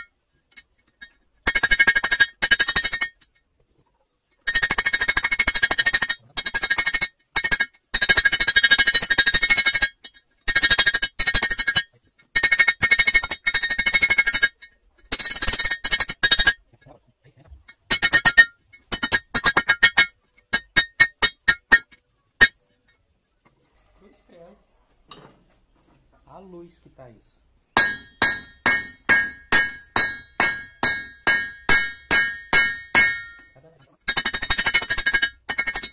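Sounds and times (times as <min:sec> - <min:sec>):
hammer striking metal on anvil: 0:27.8 - 0:34.5.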